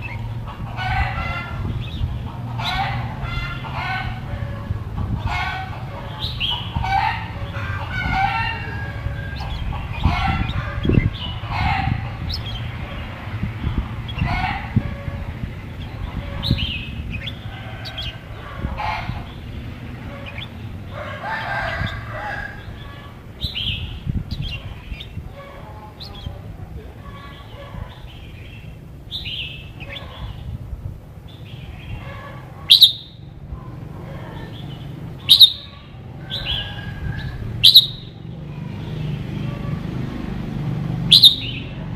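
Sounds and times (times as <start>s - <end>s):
bird chattering calls: 0.0s - 21.0s, 31.3s - 33.3s, 34.1s - 38.2s, 41.1s - 41.8s.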